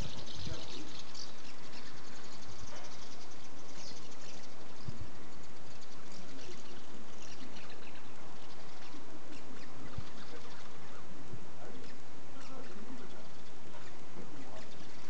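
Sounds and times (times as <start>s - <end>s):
background hiss: 0.0s - 15.0s
house martins twittering: 0.0s - 15.0s.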